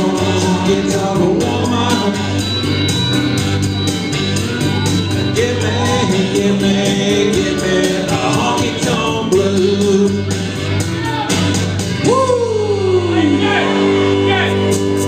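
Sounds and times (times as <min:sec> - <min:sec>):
man singing into a microphone: 0:00.0 - 0:02.6, 0:05.3 - 0:10.4
backing music with steady beat: 0:00.0 - 0:15.0.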